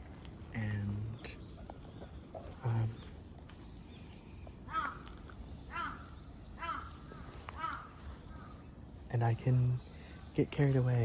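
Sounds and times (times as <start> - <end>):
faint outdoor background: 0.0 - 11.0
crow cawing: 4.7 - 8.6.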